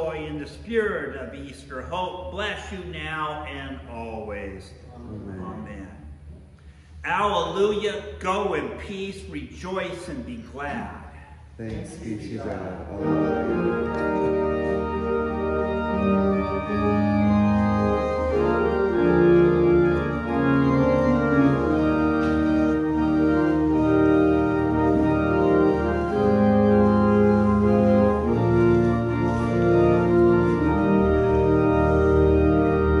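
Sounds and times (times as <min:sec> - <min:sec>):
pipe organ chords: 0:00.0 - 0:06.3, 0:07.1 - 0:33.0.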